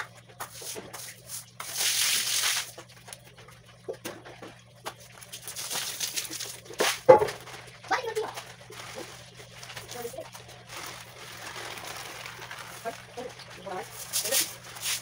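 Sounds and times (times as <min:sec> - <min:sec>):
water splashing: 0:00.6 - 0:03.1
broom swishing on wet floor: 0:13.8 - 0:15.0.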